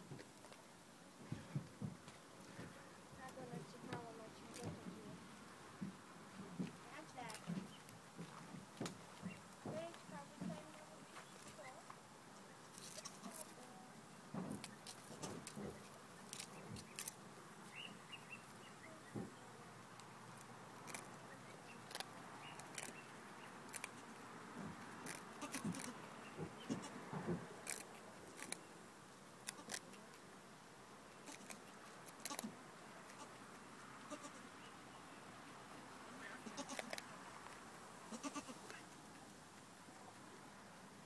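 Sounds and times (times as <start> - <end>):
rustling: 5.9 - 28.8, 29.4 - 30.2, 31.2 - 34.4, 35.4 - 40.6
goats bleating: 36.4 - 36.9, 38.1 - 38.6.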